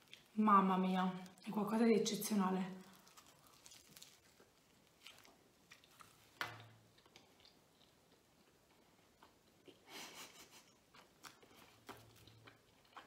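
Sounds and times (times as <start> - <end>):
chewing pizza crust: 2.7 - 13.0.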